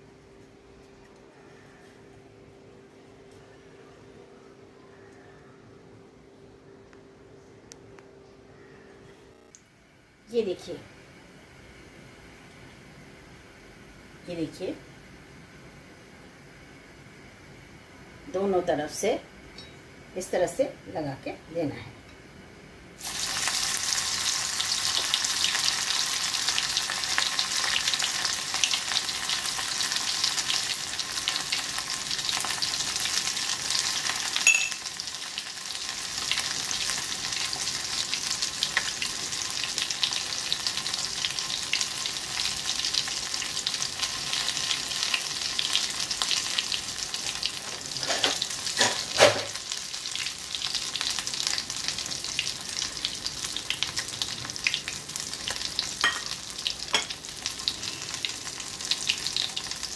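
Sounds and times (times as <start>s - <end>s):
fish frying in hot oil: 23.0s - 59.9s.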